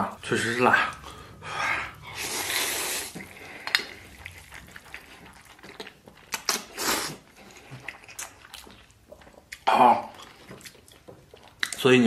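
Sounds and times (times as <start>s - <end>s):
chewing: 0.7s - 12.0s
person slurping noodles: 0.8s - 8.5s.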